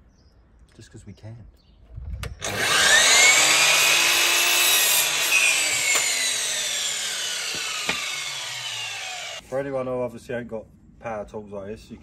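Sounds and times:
mitre saw cutting wood: 2.4s - 9.4s
saw blade spinning down: 2.4s - 9.4s.

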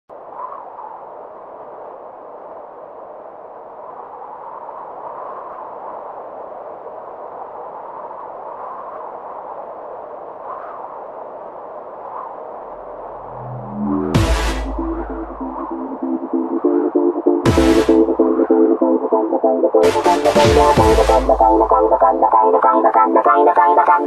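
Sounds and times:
faint electronic blips: 12.7s - 19.5s.

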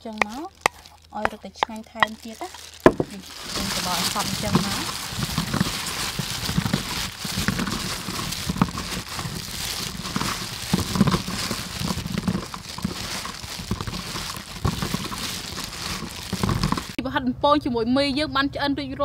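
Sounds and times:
plastic gloves crinkling: 0.0s - 17.0s
sticky meatballs squelching: 0.0s - 17.0s.

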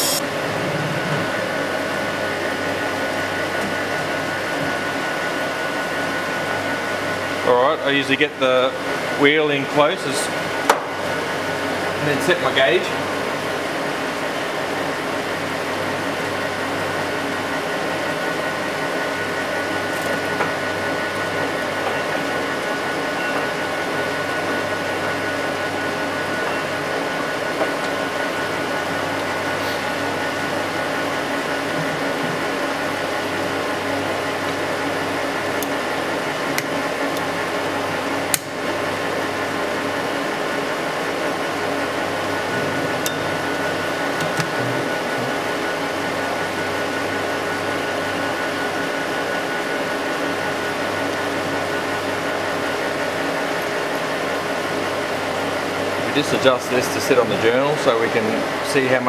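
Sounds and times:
grinder whirring: 0.0s - 0.5s.

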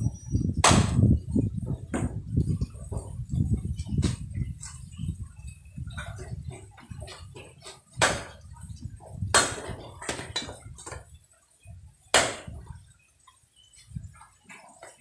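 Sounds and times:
cleaver chopping branches on wood: 0.6s - 1.1s, 8.0s - 8.4s, 9.3s - 11.0s, 12.1s - 12.6s.

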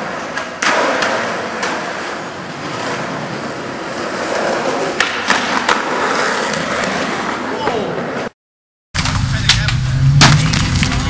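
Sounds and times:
skateboard clacks: 0.0s - 8.3s
skateboard wheels rolling on concrete: 0.0s - 8.3s, 9.0s - 11.0s.

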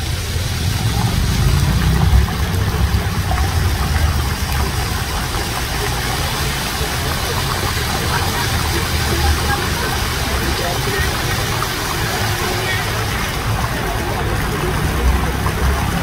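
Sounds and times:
loud low rumble: 0.0s - 8.0s
fountain water splashing on paving: 0.0s - 16.0s.

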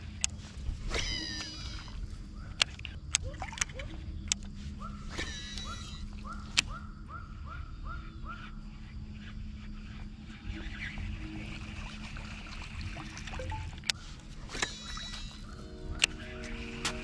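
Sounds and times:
faint hum: 0.0s - 17.0s
sharp reel clicks: 13.4s - 16.2s.

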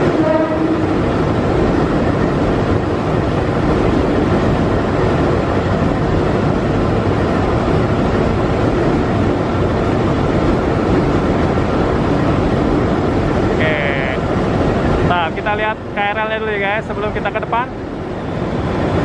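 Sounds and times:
electric train rumbling: 0.0s - 19.0s
short pitched tone: 13.6s - 14.2s.

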